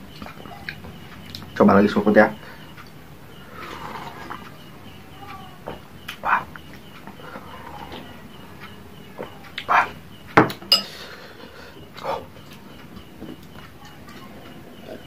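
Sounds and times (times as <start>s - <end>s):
ceramic bowl and metal spoon clinking: 10.7s - 11.0s.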